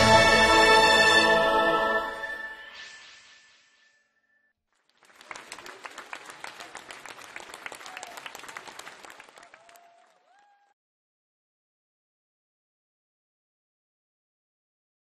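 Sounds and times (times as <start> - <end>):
crowd applauding: 4.7 - 10.8.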